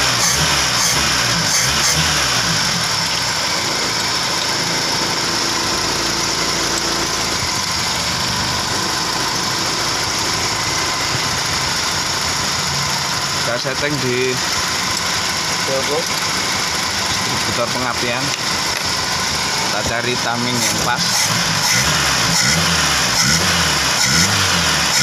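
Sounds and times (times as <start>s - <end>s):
car engine idling: 0.0s - 25.0s.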